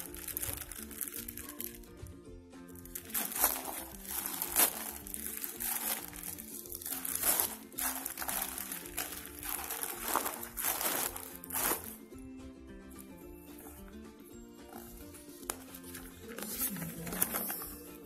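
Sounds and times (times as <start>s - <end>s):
plastic bag crinkling: 0.0s - 1.9s, 2.8s - 12.1s
quiet background music: 0.0s - 18.0s.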